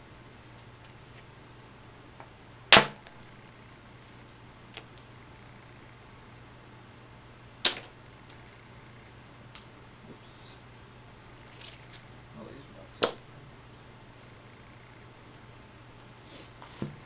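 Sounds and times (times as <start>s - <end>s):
sharp cracks of flint strikes: 2.7s - 3.3s, 7.6s - 8.0s.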